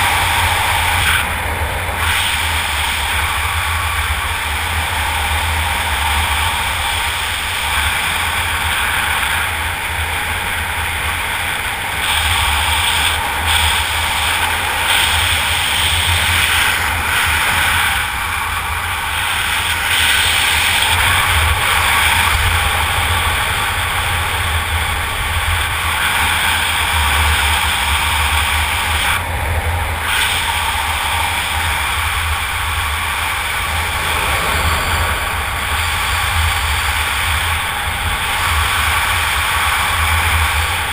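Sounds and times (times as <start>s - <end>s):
wind buffeting microphone: 31.1s - 40.9s.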